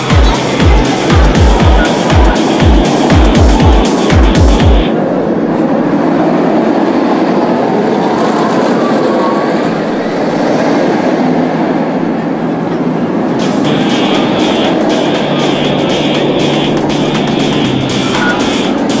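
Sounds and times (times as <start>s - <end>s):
music with heavy kick drum: 0.0s - 4.9s, 13.4s - 19.0s
roller coaster rumbling on track: 0.0s - 19.0s.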